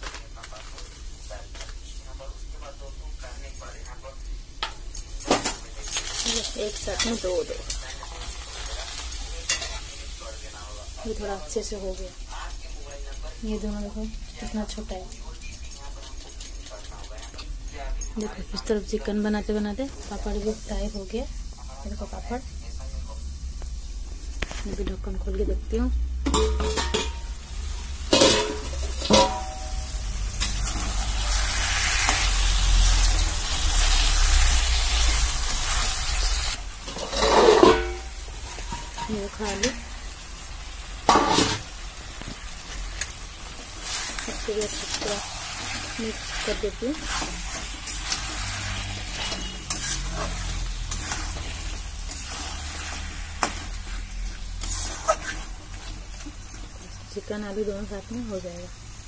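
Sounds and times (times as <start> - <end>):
curry sizzling in hot oil: 4.4 - 16.9, 18.6 - 59.0
steel lid clanking on pan: 26.2 - 27.4, 28.1 - 29.8, 36.8 - 39.8, 41.0 - 41.8
spatula stirring: 26.3 - 59.0.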